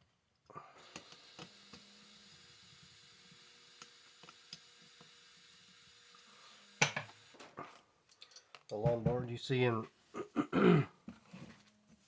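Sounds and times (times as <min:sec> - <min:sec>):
small metal parts clicking: 0:08.1 - 0:08.8.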